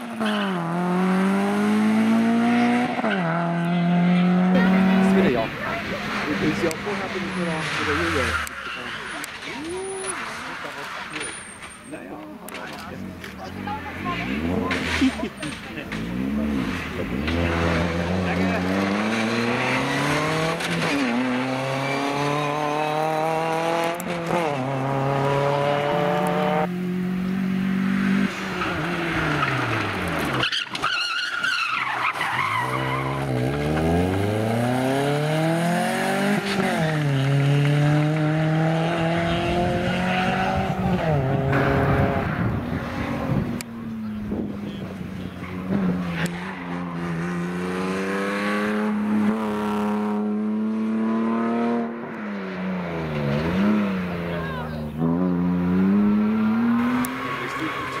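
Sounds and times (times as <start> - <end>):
rally car engines revving: 0.0 - 58.0
tyres squealing: 5.6 - 12.2, 28.6 - 33.9, 56.3 - 58.0.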